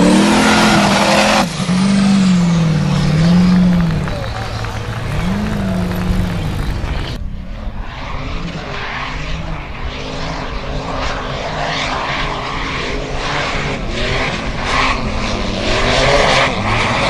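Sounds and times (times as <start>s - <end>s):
buggy engine revving hard: 0.0s - 7.2s, 12.6s - 17.0s.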